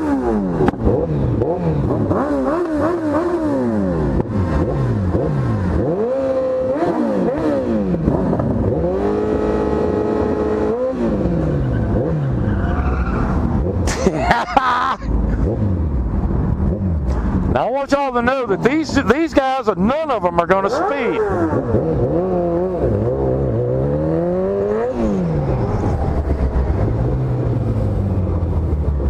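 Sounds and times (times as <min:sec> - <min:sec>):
motorcycle engines revving: 0:00.0 - 0:29.0.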